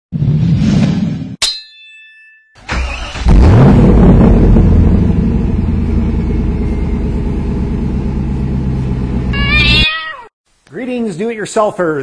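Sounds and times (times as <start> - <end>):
low engine running: 3.5 - 9.4.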